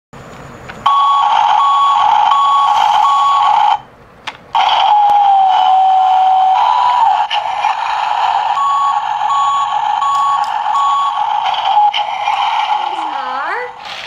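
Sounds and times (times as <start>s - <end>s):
steady hum and hiss: 0.2s - 14.0s
truck reversing beeps: 0.9s - 3.9s, 4.6s - 12.4s.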